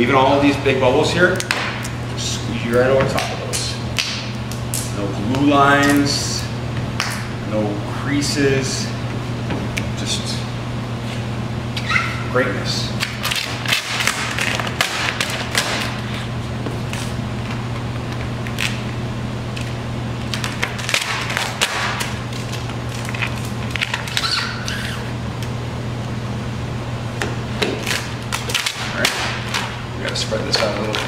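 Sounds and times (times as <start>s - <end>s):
steady low hum: 0.0s - 31.0s
vinyl film crackling: 19.5s - 24.2s.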